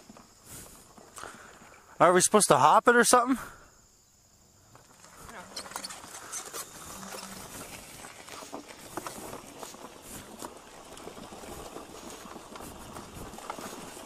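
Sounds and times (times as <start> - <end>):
tyres crunching on gravel: 4.6 - 14.0
clicks and rattles: 4.8 - 9.9
weeds brushing: 5.1 - 14.0.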